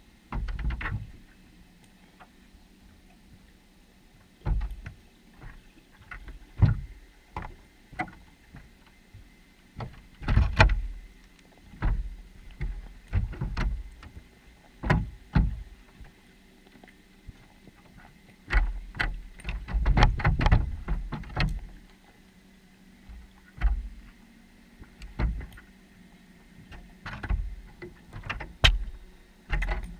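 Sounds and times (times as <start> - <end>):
fish bumping underwater camera: 26.7 - 29.9.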